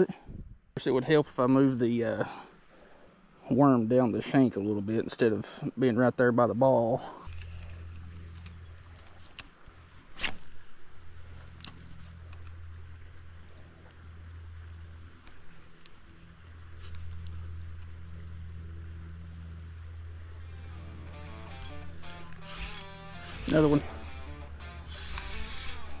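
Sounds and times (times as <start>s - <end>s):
insects droning: 0.0s - 26.0s
low steady hum: 6.5s - 26.0s
sharp clicks: 7.3s - 9.5s, 21.1s - 26.0s.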